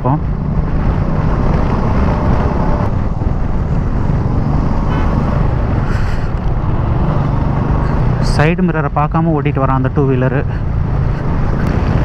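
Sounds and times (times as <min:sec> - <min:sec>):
wind noise on microphone: 0:00.0 - 0:08.2, 0:10.6 - 0:12.0
motorcycle engine running: 0:00.0 - 0:08.4.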